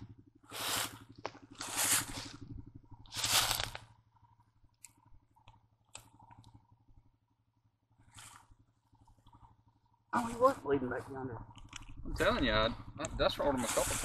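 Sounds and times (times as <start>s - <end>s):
dry leaves rustling and crunching: 0.5s - 3.9s
twigs cracking: 3.1s - 3.9s.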